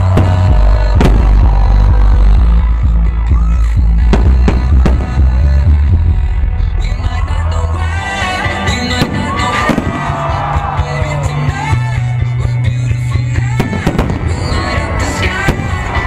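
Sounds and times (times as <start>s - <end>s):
loud music with heavy bass: 0.0s - 16.0s.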